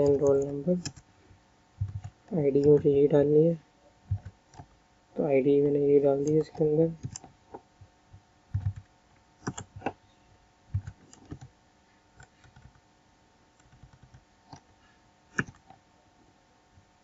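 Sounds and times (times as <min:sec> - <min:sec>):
keyboard keys tapping: 0:00.0 - 0:01.0, 0:01.8 - 0:03.0, 0:04.1 - 0:04.7, 0:06.2 - 0:10.0, 0:10.7 - 0:11.5, 0:12.2 - 0:12.8, 0:13.6 - 0:14.7, 0:15.3 - 0:15.8
low thuds: 0:01.8 - 0:02.1.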